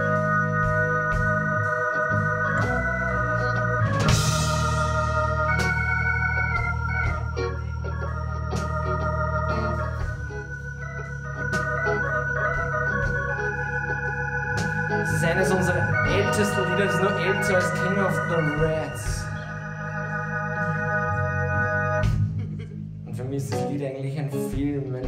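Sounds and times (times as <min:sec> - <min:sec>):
held low bass: 0:00.0 - 0:25.0
keyboard playing organ chords: 0:00.0 - 0:25.0.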